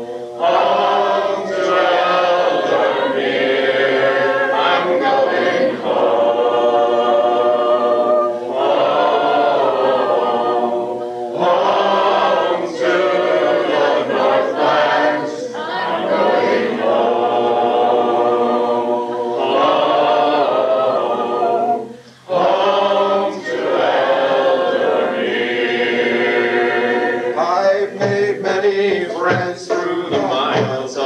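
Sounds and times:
choir singing unaccompanied: 0.0s - 31.0s.

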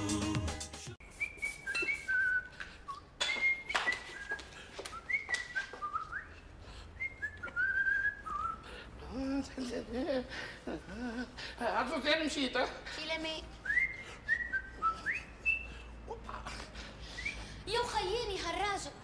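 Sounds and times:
theme music: 0.0s - 1.0s
person whistling a tune: 1.1s - 6.4s, 7.0s - 8.6s, 13.6s - 15.8s.

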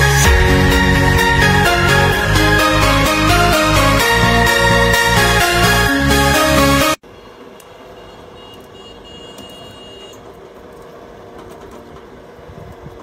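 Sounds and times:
background music: 0.0s - 7.0s
outdoor background noise: 7.0s - 13.0s.

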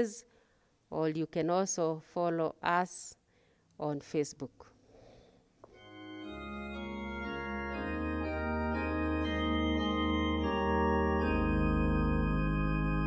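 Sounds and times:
organ playing slow chords: 5.6s - 13.0s.

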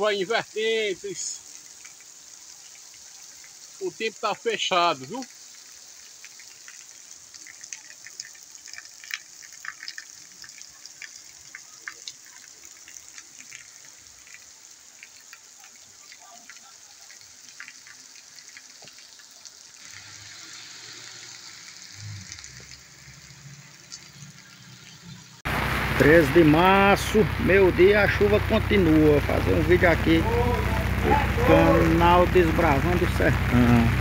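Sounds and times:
heavy rain on pavement: 0.0s - 34.0s
low rumble: 25.5s - 34.0s.

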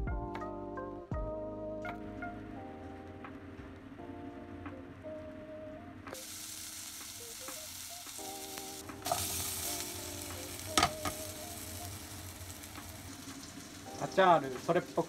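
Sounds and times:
potatoes sizzling in oil: 6.2s - 15.0s.

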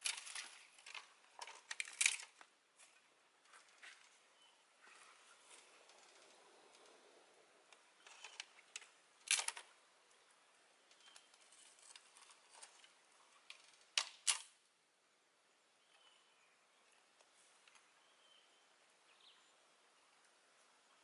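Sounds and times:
dry sticks snapping: 0.0s - 2.5s.

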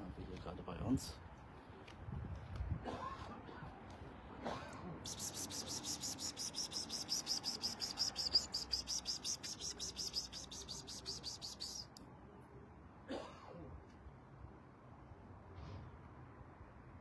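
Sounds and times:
rapid high-pitched chirping: 5.0s - 11.9s.

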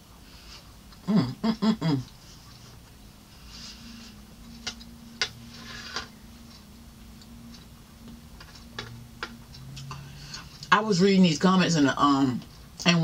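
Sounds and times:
fork scraping through food: 5.4s - 6.2s.

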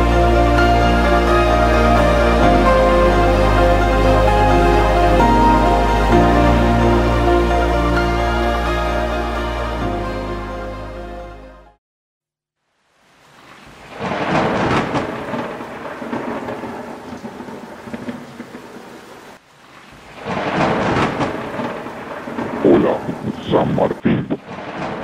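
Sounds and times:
rain: 0.0s - 10.2s, 12.6s - 25.0s
rolling thunder: 13.9s - 19.0s, 20.2s - 25.0s.

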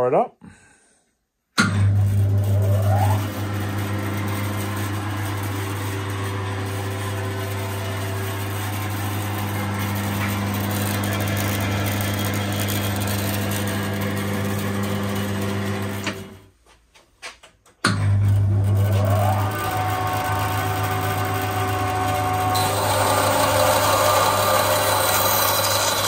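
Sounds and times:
bandsaw motor hum: 1.6s - 16.5s, 17.9s - 26.0s.

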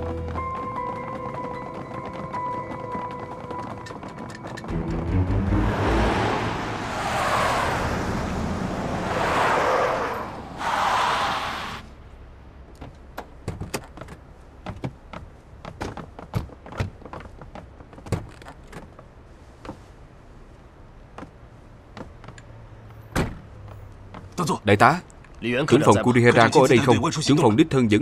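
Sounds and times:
rushing noise: 4.8s - 12.0s.

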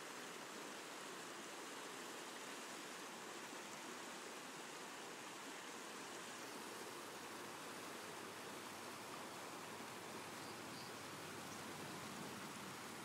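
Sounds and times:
creek water flowing: 0.0s - 13.0s.

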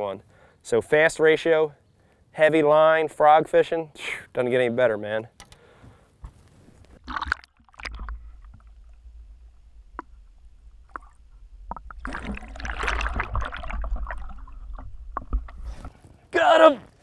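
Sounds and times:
low underwater rumble: 7.0s - 15.9s
faint bubbling: 7.0s - 16.1s
fish splashing into water: 10.8s - 15.7s
fish splashing at surface: 10.8s - 16.0s.

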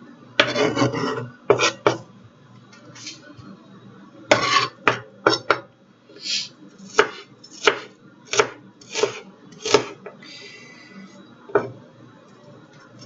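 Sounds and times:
knife chopping on cutting board: 0.4s - 2.0s, 4.3s - 5.5s, 6.9s - 10.0s.

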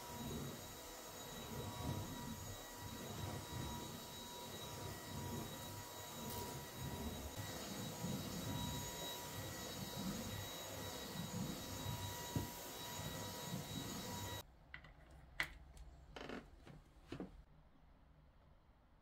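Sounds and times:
stick vacuum running: 0.0s - 14.4s.

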